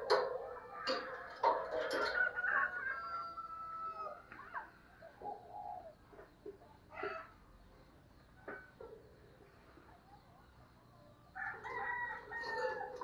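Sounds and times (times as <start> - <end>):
dove cooing: 5.0 - 6.4.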